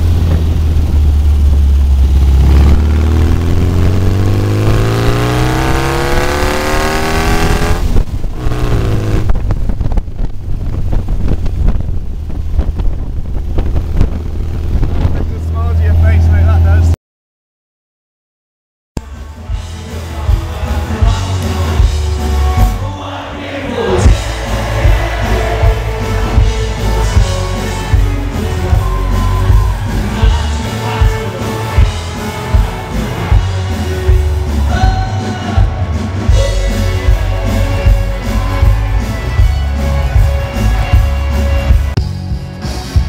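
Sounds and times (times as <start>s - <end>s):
person singing: 19.0s - 41.4s
live band playing amplified music: 19.0s - 43.0s.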